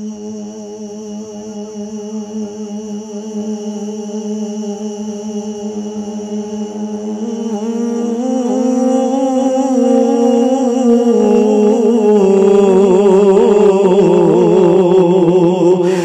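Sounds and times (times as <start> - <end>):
man singing through loudspeakers: 3.3 - 16.0.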